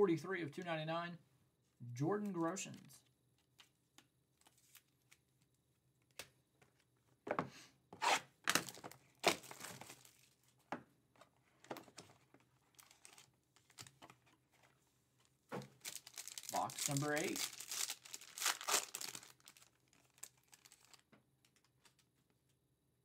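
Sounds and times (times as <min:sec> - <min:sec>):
plastic packaging crinkling: 0:08.5 - 0:10.5, 0:12.6 - 0:14.2, 0:15.7 - 0:22.1.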